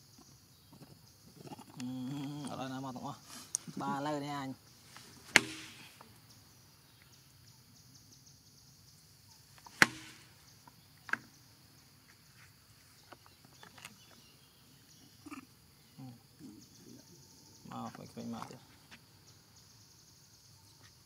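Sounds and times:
baby monkeys grunting: 0.7 - 4.2, 14.9 - 17.7
sharp knocks: 5.3 - 6.0, 9.8 - 10.4.

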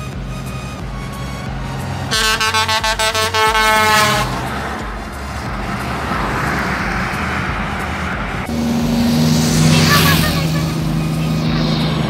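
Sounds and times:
truck air horn pulsing blast: 0.0 - 6.0
truck engine and tyres passing: 0.0 - 12.0.

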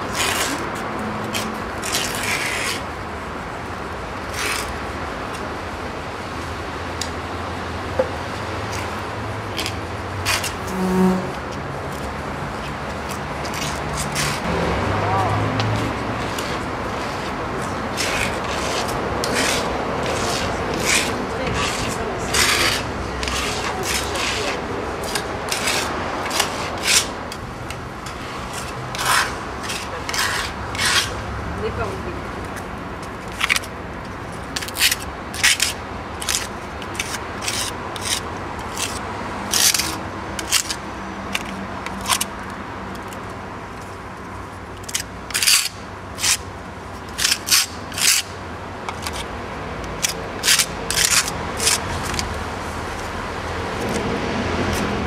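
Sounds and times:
steady background noise: 0.0 - 55.0
short scraping strokes: 10.3 - 11.6.

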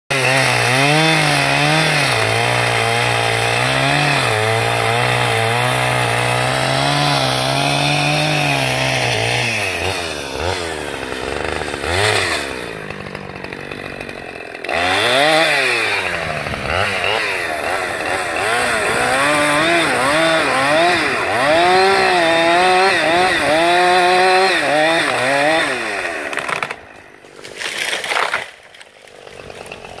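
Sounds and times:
chainsaw cutting wood: 0.1 - 30.0
tree falling through branches: 26.2 - 30.0.

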